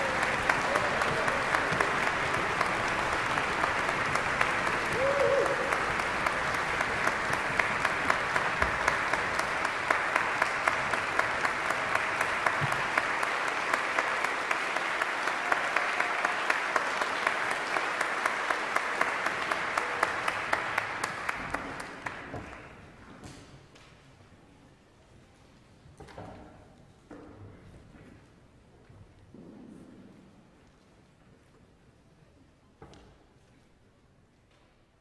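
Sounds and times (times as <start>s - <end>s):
audience applauding: 0.0s - 22.8s.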